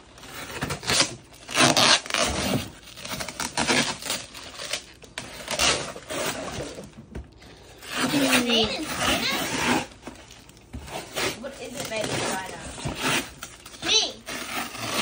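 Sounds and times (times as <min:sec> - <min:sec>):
tape ripping off box: 0:00.4 - 0:06.8, 0:10.9 - 0:15.0.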